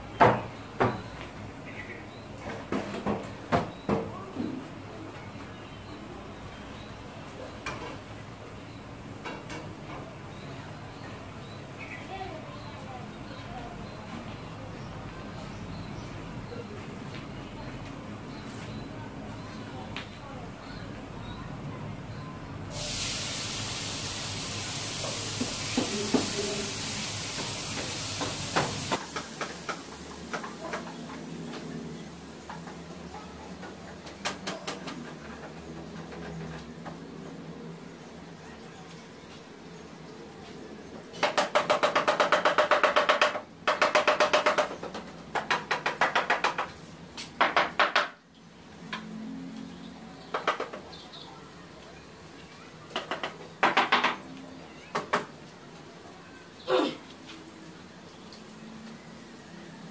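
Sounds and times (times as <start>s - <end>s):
steady high hiss: 22.7s - 33.2s
wooden knocks and taps: 41.2s - 46.8s, 47.4s - 48.2s, 50.3s - 50.9s, 52.9s - 54.3s.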